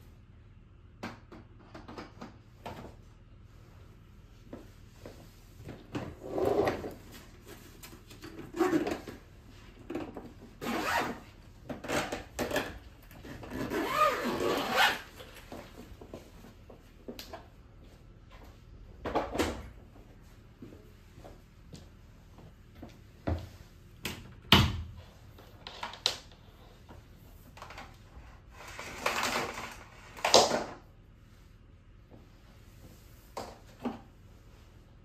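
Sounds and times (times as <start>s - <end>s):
suitcase rubbing and scraping: 10.6s - 11.2s, 13.2s - 15.2s.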